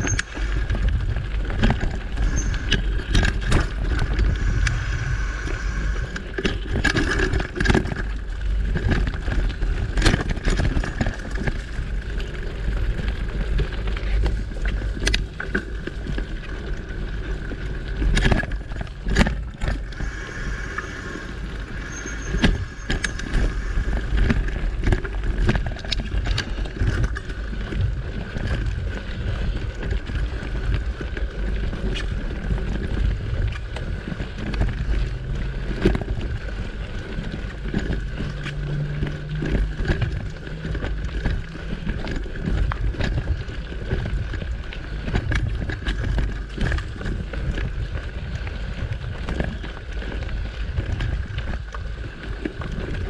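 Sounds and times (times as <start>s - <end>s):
bike rattling over bumps: 0.0s - 53.0s
tyres on dirt trail: 0.0s - 53.0s
wind on microphone: 0.0s - 53.0s
thin high tone: 2.2s - 3.0s, 19.9s - 24.0s.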